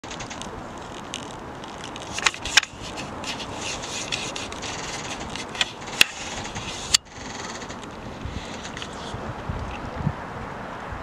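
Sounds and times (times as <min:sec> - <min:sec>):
camera handling noise: 0:00.1 - 0:09.8.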